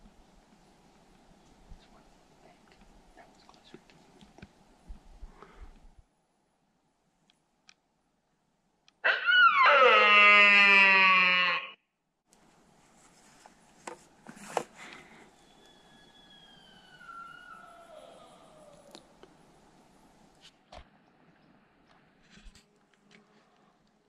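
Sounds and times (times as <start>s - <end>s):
deer call blown: 9.0s - 11.8s, 15.4s - 18.9s
distant stag call: 9.0s - 11.8s.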